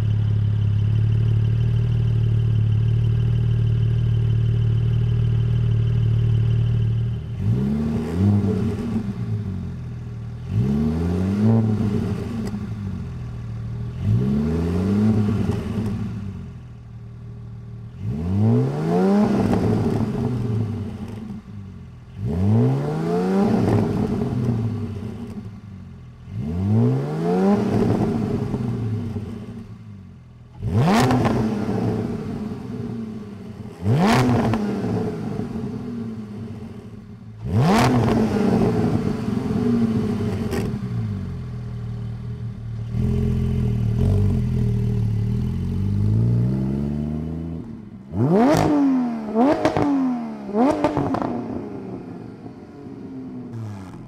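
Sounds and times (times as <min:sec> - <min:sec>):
engine low rumble: 0:00.0 - 0:54.0
car engine revving: 0:05.3 - 0:29.8, 0:30.5 - 0:54.0.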